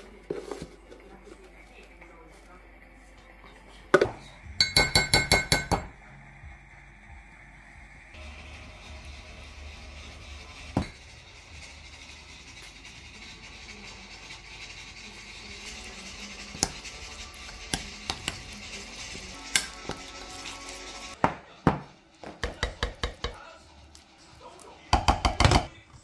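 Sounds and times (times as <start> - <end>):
metal spoon clinking and scraping: 8.1 - 21.2, 22.0 - 25.7
background music: 16.0 - 22.0.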